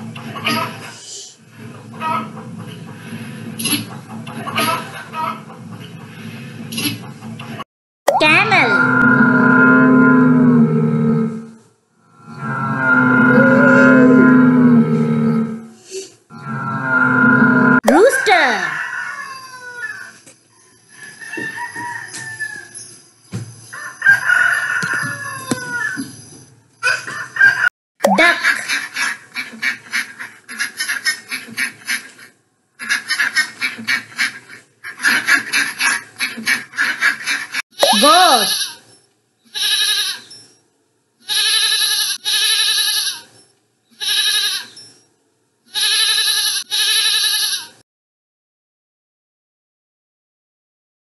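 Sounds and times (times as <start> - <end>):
rooster crowing: 18.6 - 22.9, 23.7 - 26.1
goat bleating: 39.5 - 40.2, 41.3 - 43.3, 44.0 - 44.7, 45.8 - 47.8.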